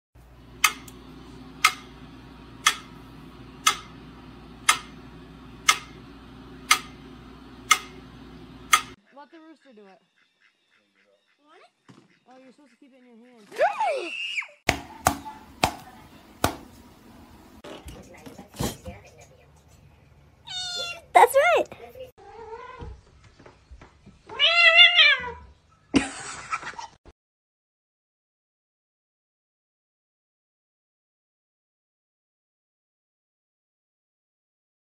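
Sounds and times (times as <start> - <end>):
metronome ticking: 2.6 - 2.9, 3.6 - 4.0, 4.6 - 5.0, 5.6 - 6.0, 6.6 - 7.0
cat meowing: 20.4 - 21.1, 24.3 - 25.5.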